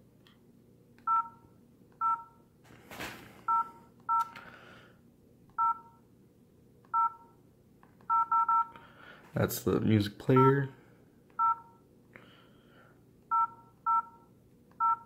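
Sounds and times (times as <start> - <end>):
phone keypad beeps: 1.0 - 1.4, 2.0 - 2.3, 3.5 - 4.3, 5.6 - 6.0, 6.9 - 7.3, 8.1 - 8.7, 11.4 - 11.8, 13.3 - 15.0.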